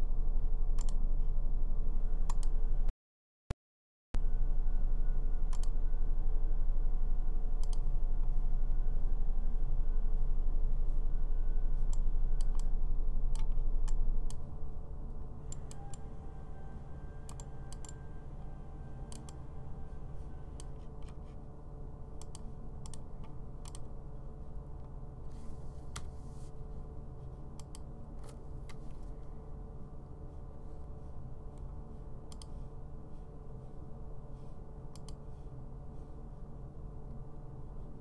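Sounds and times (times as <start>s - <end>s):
steady low hum: 0.0s - 2.9s, 4.2s - 38.0s
computer mouse clicking: 5.5s - 5.7s, 7.6s - 7.9s, 11.9s - 12.7s, 17.2s - 18.0s, 19.1s - 19.4s, 22.2s - 23.9s, 27.6s - 28.9s, 32.3s - 32.6s, 34.9s - 35.2s.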